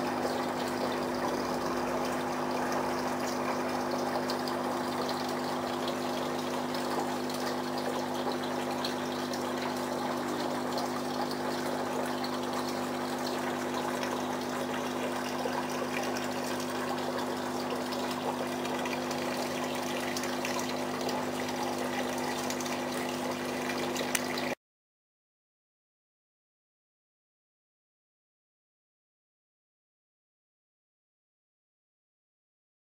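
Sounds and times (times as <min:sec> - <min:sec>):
water trickling: 0:00.0 - 0:24.6.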